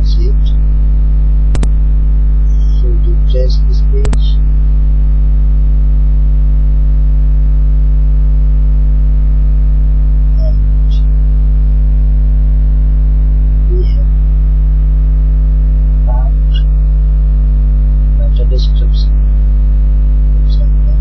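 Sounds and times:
electrical mains hum: 0.0 - 21.0.

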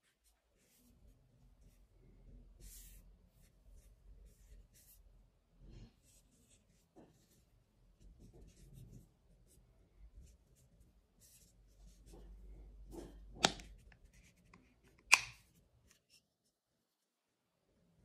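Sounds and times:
plastic lid clicks: 13.4 - 13.7, 15.0 - 15.4.

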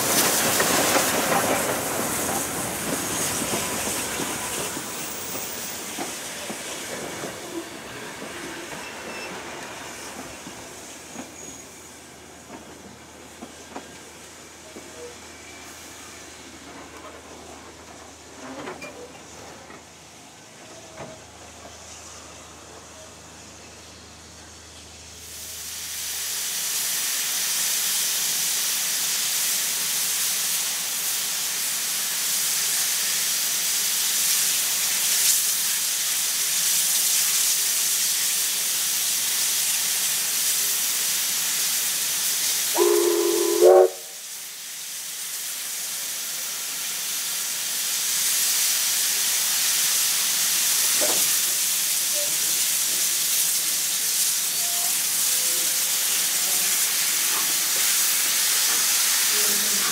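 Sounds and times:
steam locomotive hissing: 0.0 - 59.9
steam whistle: 42.7 - 44.3, 54.5 - 56.6.

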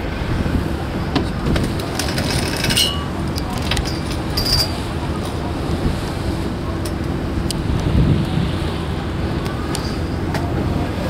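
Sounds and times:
boat engine: 0.0 - 11.0
wind on microphone: 0.0 - 11.0
light clicks and rattles: 1.5 - 5.4.

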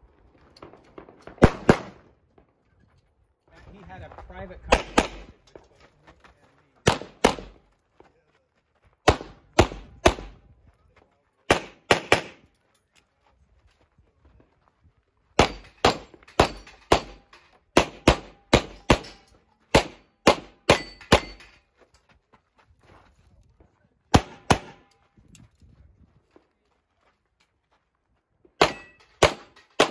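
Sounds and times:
handgun shots: 4.7 - 5.3, 6.9 - 7.6, 11.5 - 12.4, 15.4 - 21.5, 24.1 - 24.9, 28.6 - 29.9.

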